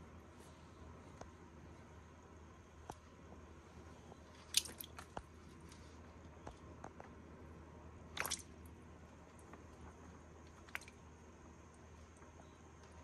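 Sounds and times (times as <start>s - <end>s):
wet squishy bites: 4.4s - 5.3s, 8.1s - 8.6s.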